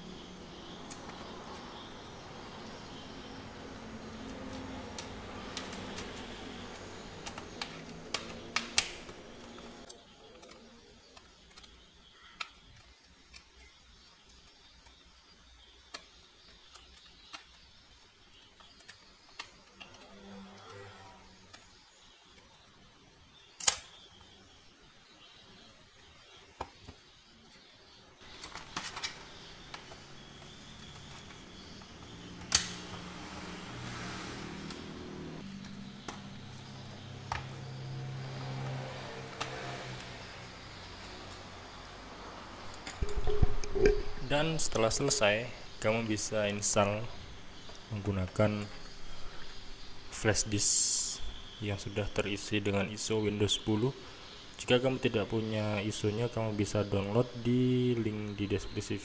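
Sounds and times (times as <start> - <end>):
plastic laptop parts clicking: 7.2 - 15.0, 32.4 - 32.8
low steady hum: 42.6 - 48.0.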